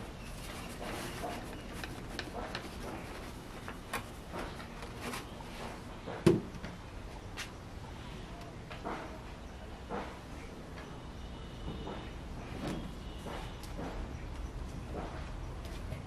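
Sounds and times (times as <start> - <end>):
dry husk rustling: 0.0 - 5.8.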